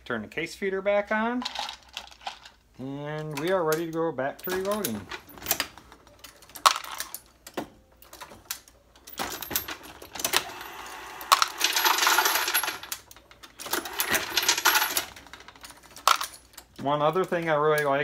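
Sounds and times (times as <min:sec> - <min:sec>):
bullets clinking and rattling: 0:03.4 - 0:10.4, 0:11.3 - 0:18.0.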